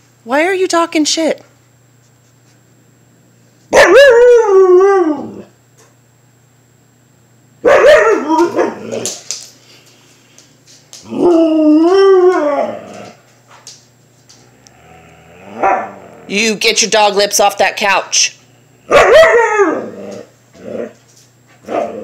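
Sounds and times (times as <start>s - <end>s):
dog howling calls: 3.8s - 5.5s, 7.7s - 9.1s, 11.0s - 13.2s, 14.8s - 16.3s, 18.9s - 20.9s.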